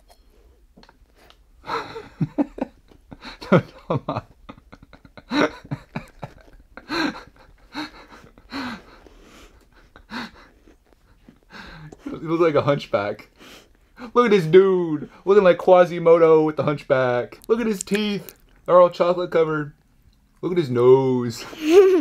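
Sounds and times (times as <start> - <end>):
person laughing: 1.7 - 9.0, 14.1 - 15.1, 21.4 - 22.0
wordless voice sounds: 14.1 - 16.0, 16.8 - 19.7.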